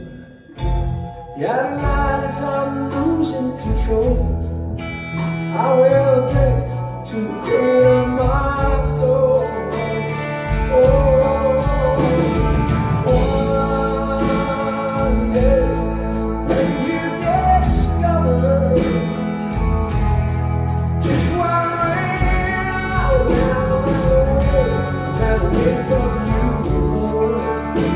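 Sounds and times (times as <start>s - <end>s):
country-rock band playing: 0.0s - 27.9s.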